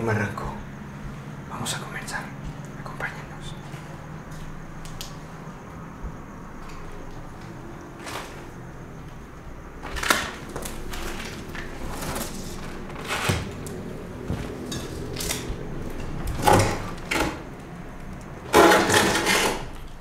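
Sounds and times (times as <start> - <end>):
door scraping: 18.5 - 19.8.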